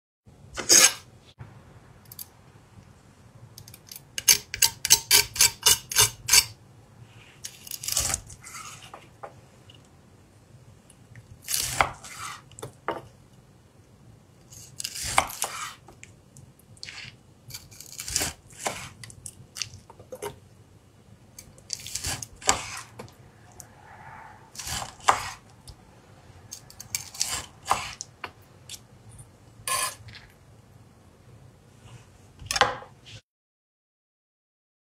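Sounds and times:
knife slicing steak on board: 24.6 - 25.4.

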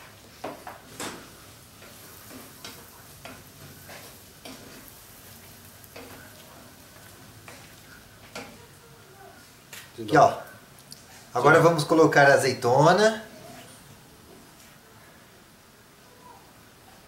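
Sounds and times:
faint food sizzle: 0.0 - 17.0
wooden spoon scraping a pot: 0.3 - 8.6.

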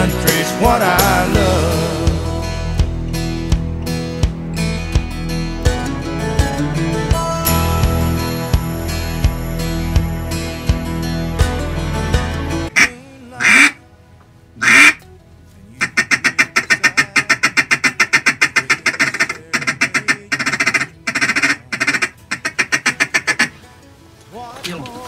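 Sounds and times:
country song: 0.0 - 14.0, 15.5 - 22.0, 24.3 - 25.0
duck call quacking: 12.7 - 13.8, 14.6 - 15.0, 15.8 - 23.6.

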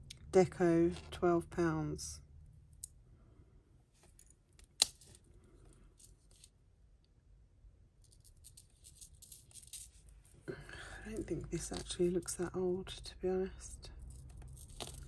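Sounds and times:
metal chain necklace clicking: 8.1 - 10.1, 14.0 - 15.0.

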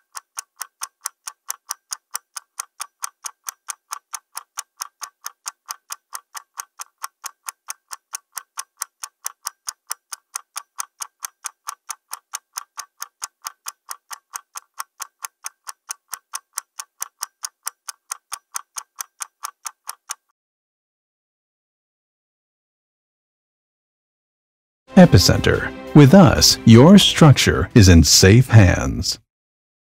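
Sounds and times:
clock ticking rapidly: 0.0 - 20.3, 25.0 - 28.8.

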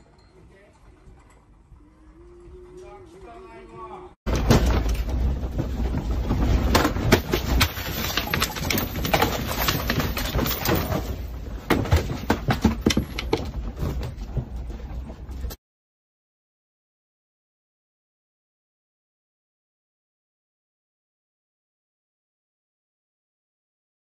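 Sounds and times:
furniture rattling and clattering: 4.3 - 15.6.

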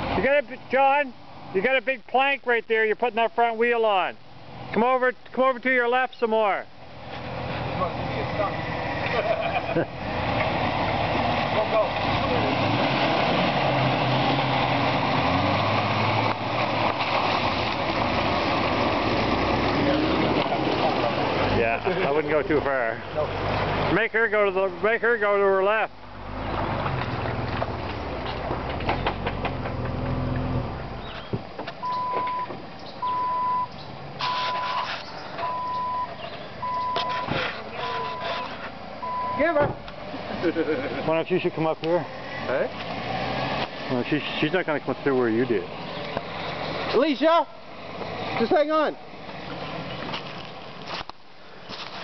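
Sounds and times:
reversing beeper: 31.8 - 37.3, 38.0 - 39.6.

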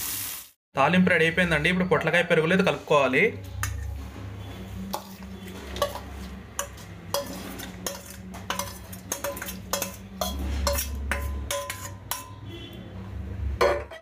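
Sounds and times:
spoon scraping steel pan: 3.6 - 12.8.

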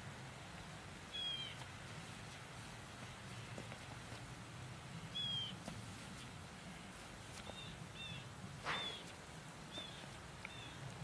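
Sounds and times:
low outdoor rumble: 0.0 - 11.0
brief rustle: 8.6 - 9.2.

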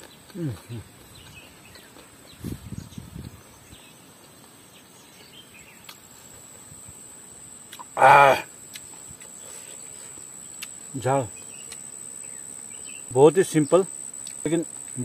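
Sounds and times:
high insect drone: 0.0 - 15.0
man humming: 0.3 - 0.9, 7.8 - 8.5
faint bird chirps: 11.3 - 13.8.

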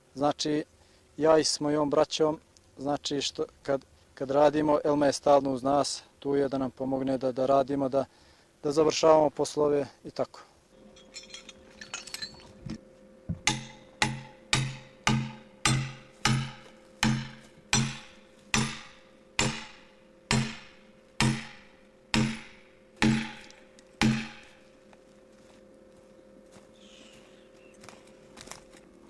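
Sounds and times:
heavy hammer blows on iron spike: 13.4 - 24.6.

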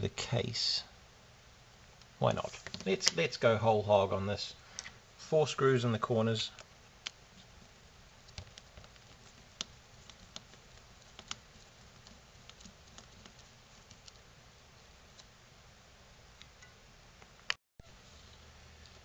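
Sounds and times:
low steady hiss: 0.0 - 19.0.

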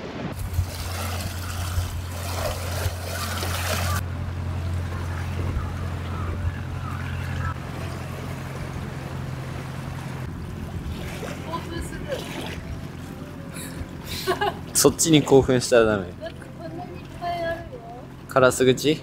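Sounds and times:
steady low hum: 0.1 - 19.0
seawater splashing on rocks: 0.3 - 4.0.

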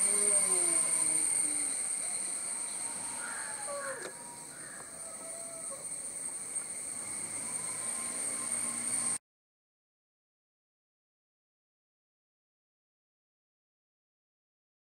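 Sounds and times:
high-pitched background hum: 0.0 - 9.2.

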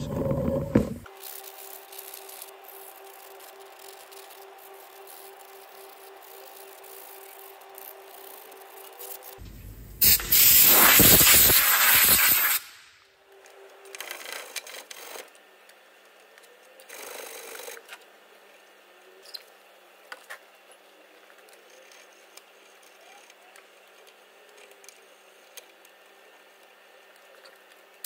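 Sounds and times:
spray can spraying: 10.0 - 12.8.

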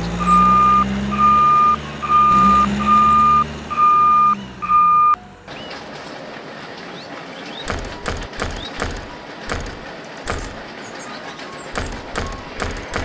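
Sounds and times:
low engine hum: 0.0 - 11.2
reversing alarm beeping: 0.2 - 5.2.

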